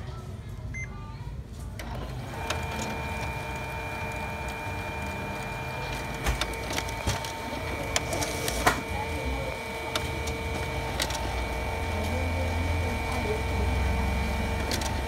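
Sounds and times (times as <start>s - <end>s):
printer clicks: 1.8s - 12.2s, 14.2s - 15.0s
laser printer whining: 1.8s - 15.0s.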